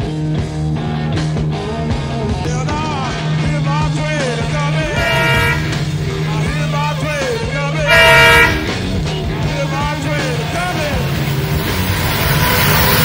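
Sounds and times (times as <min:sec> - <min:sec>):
passing train hum: 0:04.4 - 0:13.0
locomotive air horn blasts: 0:04.8 - 0:06.5, 0:07.8 - 0:09.1.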